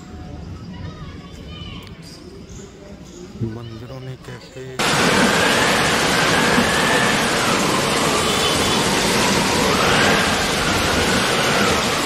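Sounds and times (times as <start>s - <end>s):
loud rushing static hiss: 4.8s - 12.0s.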